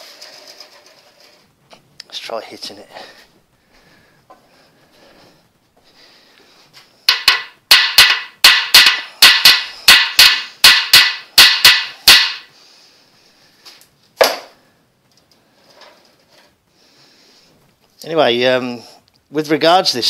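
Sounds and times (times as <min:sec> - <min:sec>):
hammer striking metal bolt: 0:07.1 - 0:12.5.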